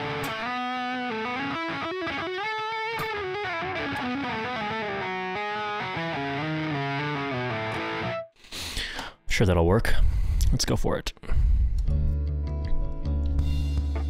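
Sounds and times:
overdriven electric guitar melody: 0.0s - 8.4s.

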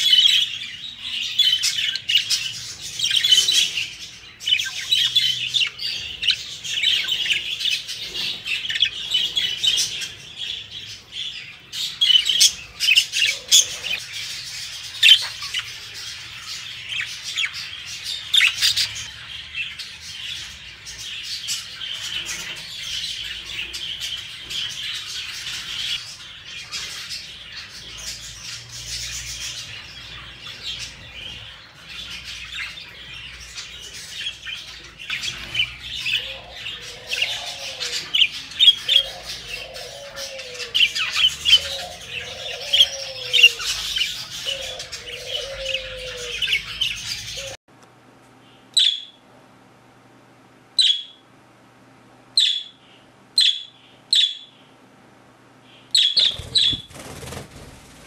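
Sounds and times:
budgerigars chattering and warbling: 0.0s - 47.6s, 50.8s - 51.2s, 52.4s - 54.7s, 55.8s - 57.4s.

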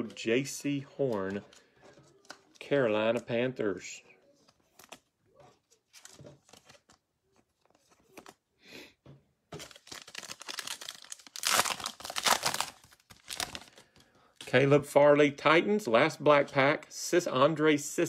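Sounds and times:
cards clicking and shuffling: 0.0s - 3.4s, 4.4s - 8.4s
foil pack crinkling: 9.6s - 14.0s.

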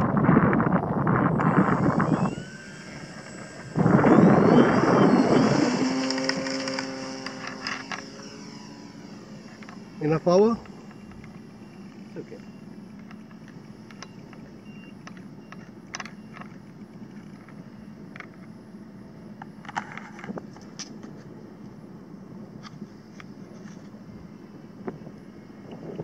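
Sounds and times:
model plane motor drone: 0.0s - 26.0s.

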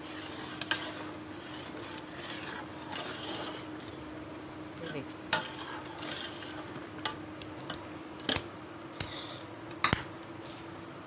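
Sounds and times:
ladle scraping a pot: 0.0s - 4.1s, 4.8s - 8.4s, 9.0s - 9.5s
faint steady hum: 0.0s - 11.0s.

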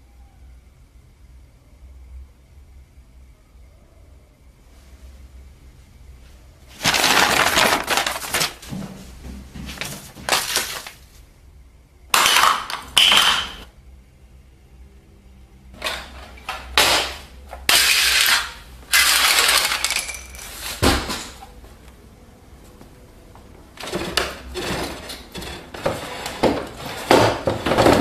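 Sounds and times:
small objects clattering on hard floor: 6.7s - 11.0s, 12.1s - 13.7s, 15.8s - 21.4s, 23.8s - 28.0s.

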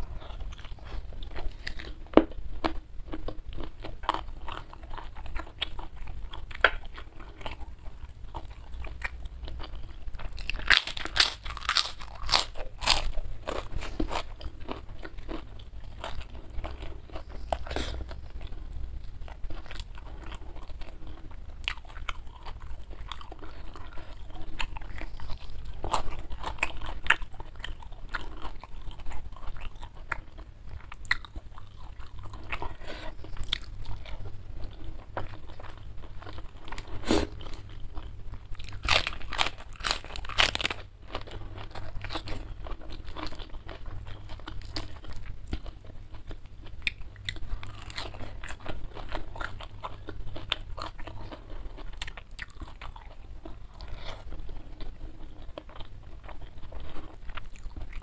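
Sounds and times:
person chewing crisp food: 0.0s - 58.0s.

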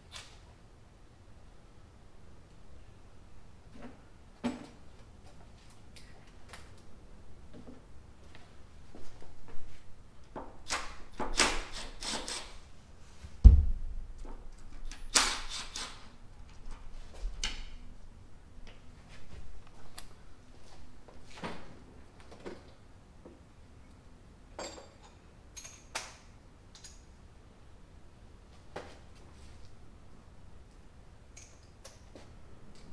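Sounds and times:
heavy thump: 13.4s - 14.2s.

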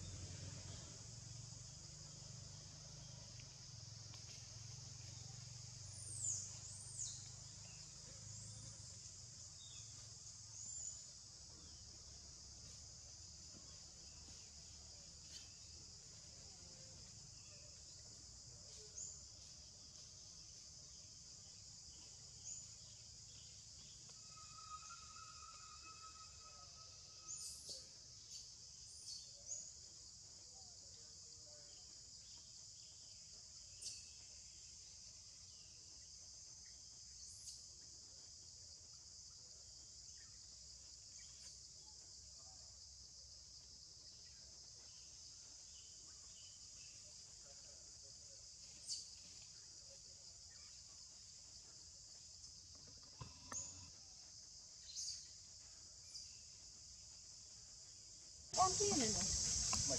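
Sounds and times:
high-pitched insect chorus: 0.0s - 59.9s
sharp insect chirps: 0.0s - 59.9s.

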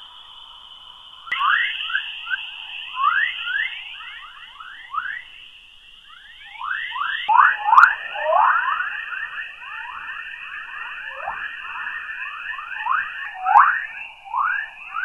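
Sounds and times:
steady high hiss: 0.0s - 15.0s
rapid rising chirps: 1.4s - 15.0s.

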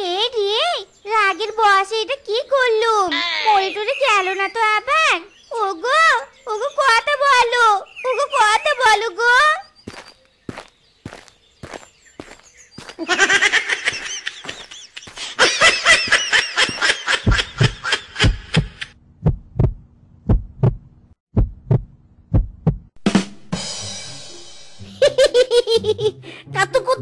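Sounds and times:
giggling laughter: 13.0s - 18.9s, 24.9s - 27.0s
cartoon heartbeat thuds: 16.7s - 23.0s
music: 23.0s - 27.0s.

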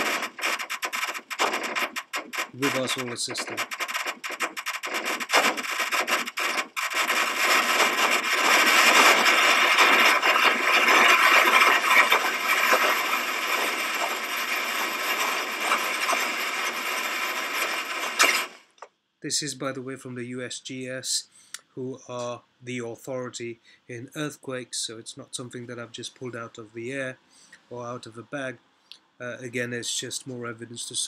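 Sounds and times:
scratchy crackling noise: 0.0s - 18.9s.

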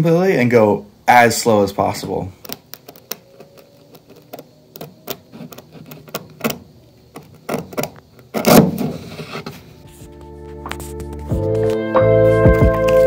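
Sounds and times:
music: 9.8s - 13.0s.

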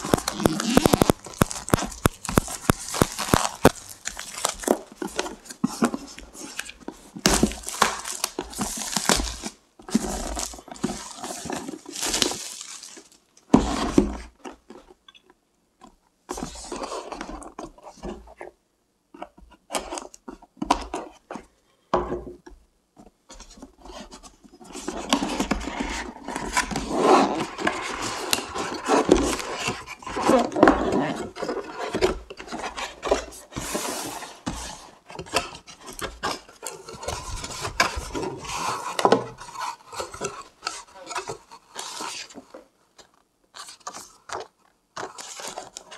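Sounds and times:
cardboard sliding and rubbing: 0.0s - 6.7s, 23.9s - 42.7s
hands rustling on cardboard box: 0.0s - 13.1s.

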